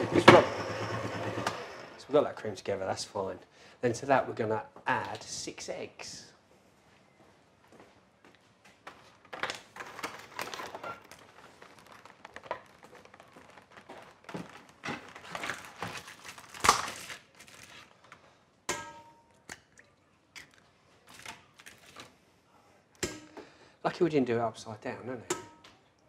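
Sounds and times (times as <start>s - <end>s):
egg box crinkling: 9.3s - 18.1s.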